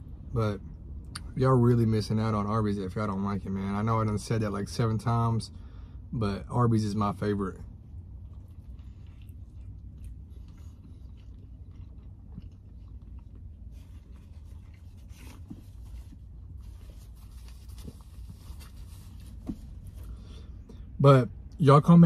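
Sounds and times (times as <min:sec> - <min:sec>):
low hum: 0:05.5 - 0:22.0
man chewing: 0:07.8 - 0:20.9.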